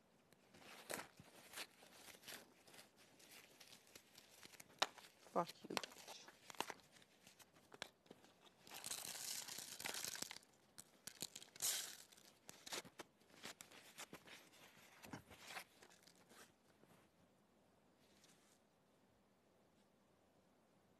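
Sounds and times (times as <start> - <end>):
paper rustling and crinkling: 0.4 - 17.0.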